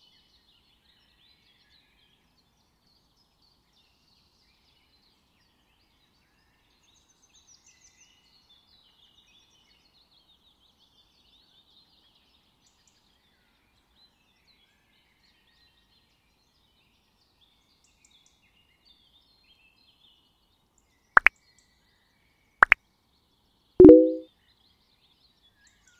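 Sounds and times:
mouse double click: 23.8s - 24.2s.

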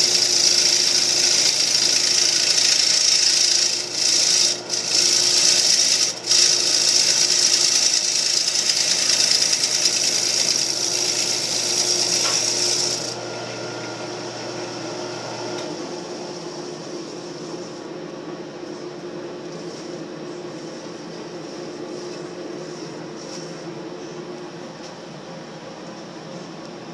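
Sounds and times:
tool rubbing on spinning wood: 0.0s - 13.2s.

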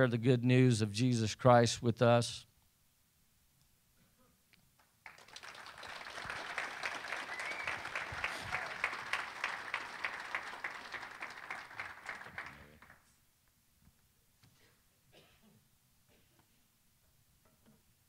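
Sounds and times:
crowd applauding: 5.0s - 13.1s.

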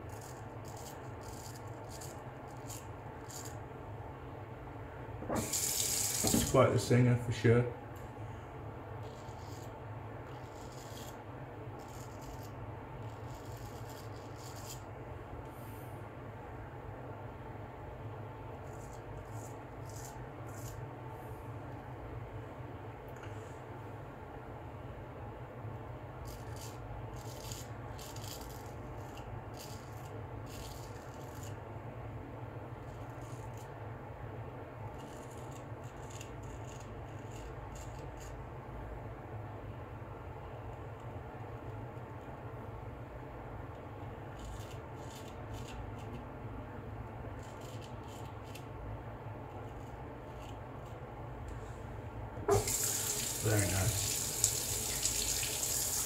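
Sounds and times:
razor scraping stubble: 0.0s - 3.6s, 10.3s - 11.2s, 11.8s - 14.9s, 18.6s - 20.8s, 26.2s - 31.6s, 34.9s - 38.4s, 44.3s - 46.2s, 47.4s - 48.7s.

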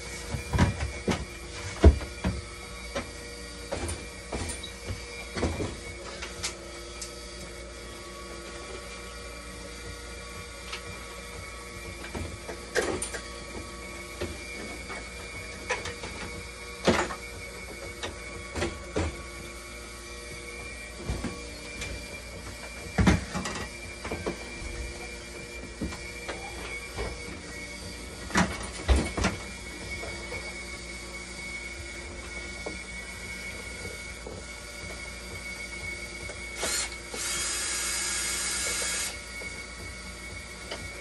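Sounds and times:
machine humming and whining: 0.0s - 41.0s.

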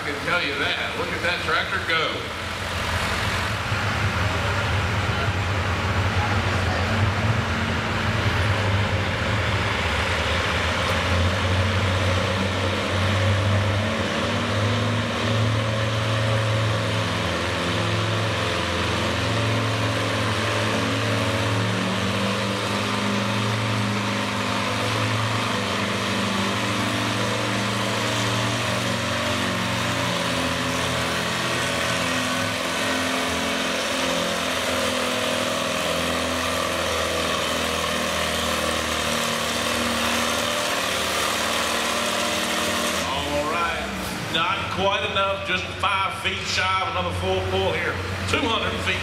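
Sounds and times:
tractor engine under load: 0.0s - 49.0s.

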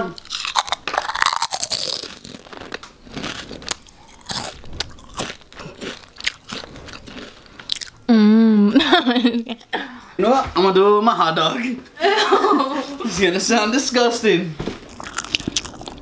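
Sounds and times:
crunching and chewing chips: 0.0s - 8.1s, 14.8s - 16.0s.

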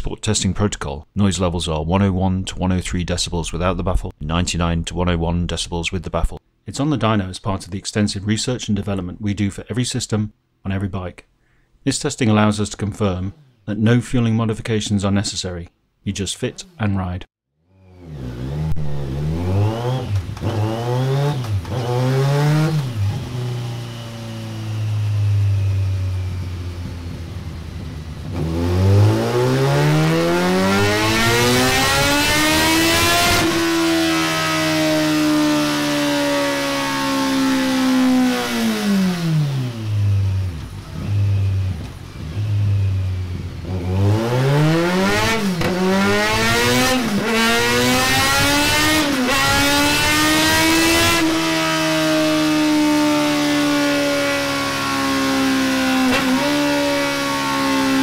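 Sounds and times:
motorcycle engine revving: 17.7s - 58.0s.

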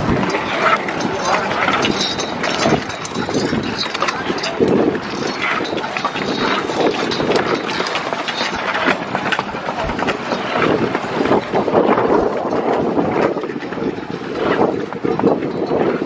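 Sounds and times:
scooter wheels rolling on concrete: 0.0s - 16.0s
wheel clicks and knocks: 0.0s - 16.0s
wind on microphone: 0.0s - 16.0s.

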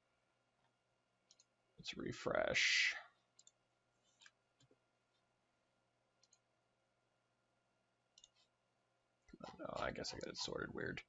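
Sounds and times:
faint computer mouse clicks: 1.3s - 1.5s, 3.4s - 3.6s, 6.2s - 6.5s, 8.2s - 8.5s.

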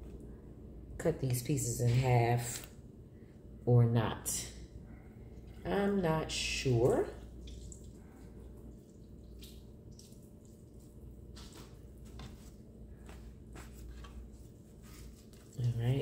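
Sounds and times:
wet squishing of fish: 6.8s - 12.6s
paper towel rustling: 10.7s - 16.0s
soft handling noises: 11.3s - 16.0s.

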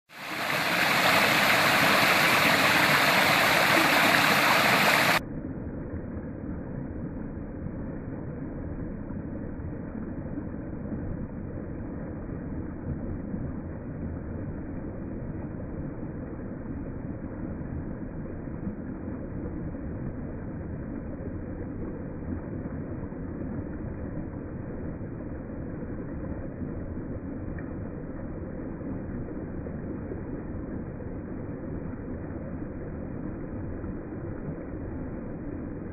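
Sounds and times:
water rushing over rocks: 0.1s - 5.2s.

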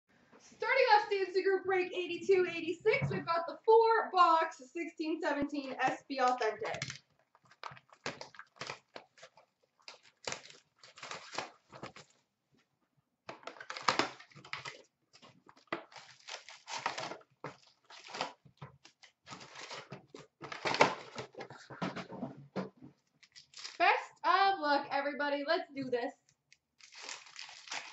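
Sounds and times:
cardboard and wrappers tearing: 6.7s - 12.2s, 13.3s - 21.6s, 23.2s - 23.8s, 26.8s - 27.9s.

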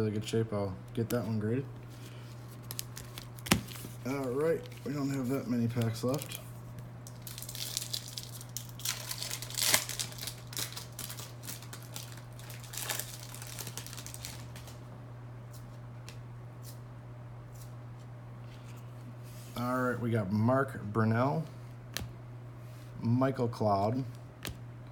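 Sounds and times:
card pack wrapper tearing: 2.5s - 6.4s, 7.0s - 14.8s.

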